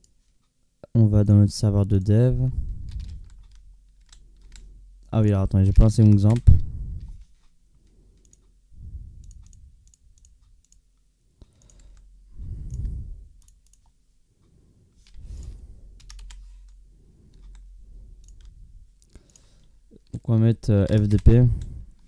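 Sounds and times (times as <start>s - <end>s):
mouse and keyboard clicks: 11.4s - 14.0s, 15.0s - 20.2s, 20.8s - 21.4s
soft low swells of noise: 11.9s - 20.0s.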